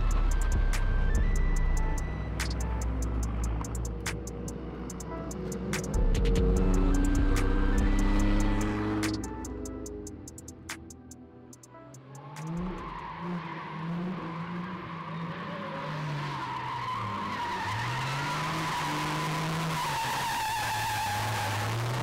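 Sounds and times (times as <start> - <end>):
tires squealing and skidding: 0.0 - 9.9, 11.9 - 22.0
car engines revving: 0.0 - 11.1, 11.9 - 22.0.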